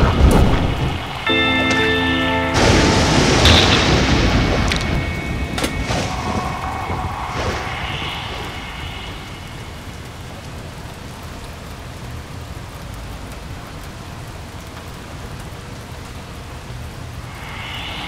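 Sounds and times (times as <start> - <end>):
low rumble: 0.0 - 11.4
steady hiss: 0.0 - 18.0.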